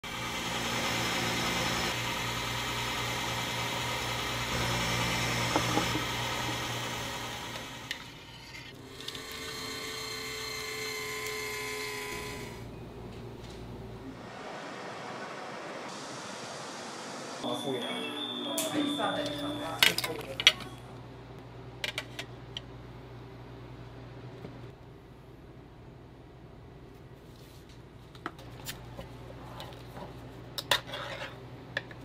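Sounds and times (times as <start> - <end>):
small machine whirring and grinding: 0.0 - 14.3.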